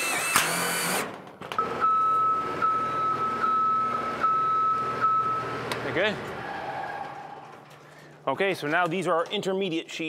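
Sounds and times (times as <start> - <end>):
scissor lift motor running: 0.0 - 1.1
impact driver whirring: 0.0 - 1.2.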